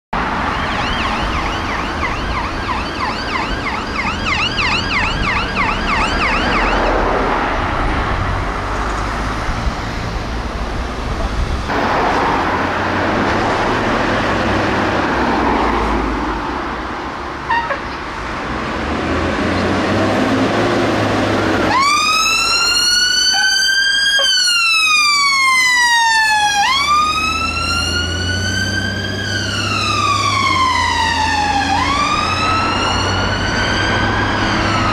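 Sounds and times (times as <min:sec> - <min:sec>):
road traffic noise: 0:00.1 - 0:34.9
distant siren yelping: 0:00.2 - 0:07.3, 0:21.4 - 0:34.9
fire engine siren wailing: 0:00.2 - 0:08.1, 0:19.3 - 0:34.9.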